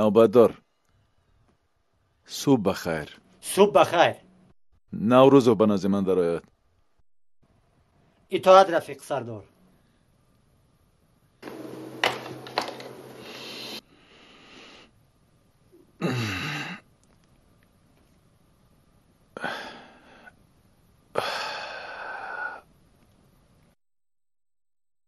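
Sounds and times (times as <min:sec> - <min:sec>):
man breathing out loudly: 0:21.1 - 0:22.7.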